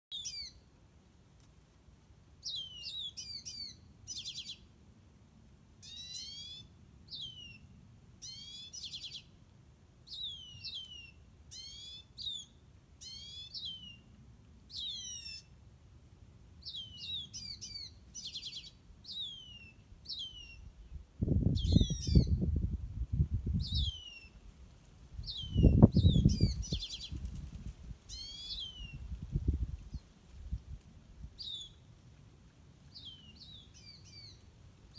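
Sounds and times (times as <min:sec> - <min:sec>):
birds calling: 0:05.8 - 0:09.3, 0:10.1 - 0:14.1, 0:14.7 - 0:15.6, 0:28.1 - 0:29.1.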